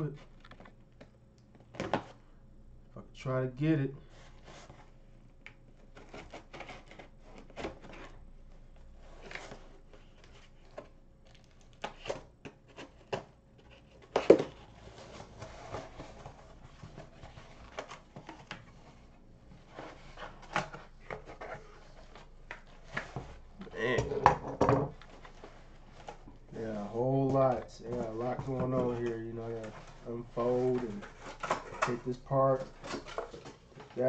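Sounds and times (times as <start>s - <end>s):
cardboard package scraping and rustling: 11.9s - 23.5s.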